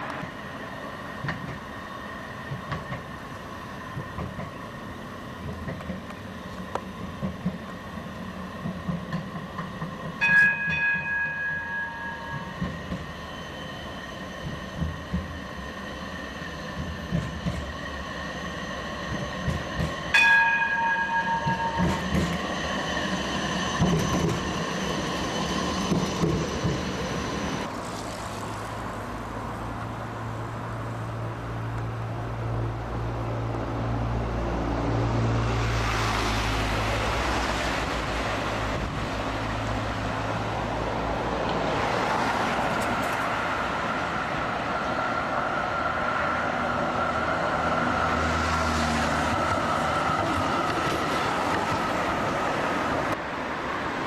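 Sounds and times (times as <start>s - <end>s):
low hum of traffic: 0.0s - 54.0s
tram electric whine: 0.0s - 54.0s
tram gong ringing: 10.2s - 13.3s, 20.1s - 25.3s.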